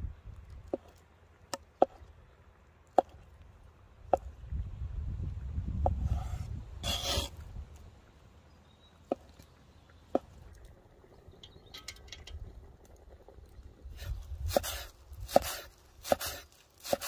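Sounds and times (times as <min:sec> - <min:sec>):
knife slicing soft cheese: 0:05.9 - 0:07.4.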